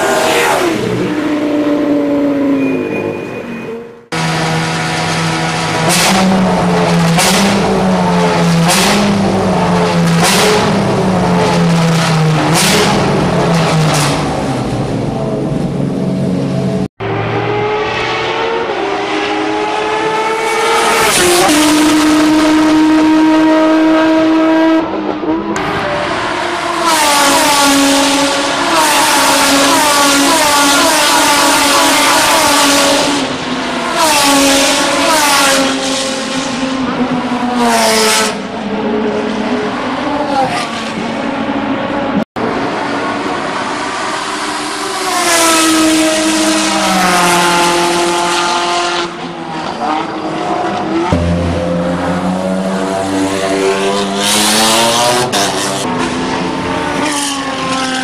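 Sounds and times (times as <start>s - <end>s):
race car engine: 0.0s - 58.0s.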